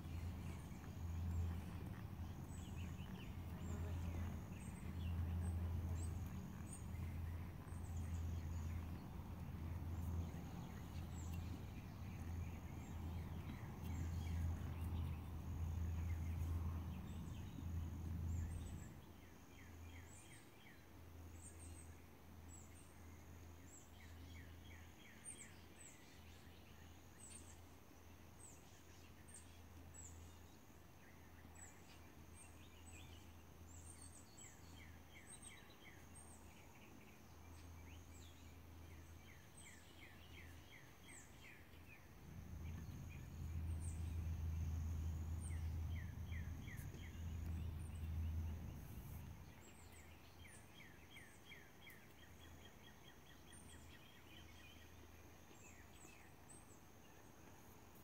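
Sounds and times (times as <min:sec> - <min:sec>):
birds chirping: 0:00.0 - 0:19.0, 0:36.8 - 0:57.2
low steady rumble: 0:00.0 - 0:24.8, 0:29.8 - 0:57.2.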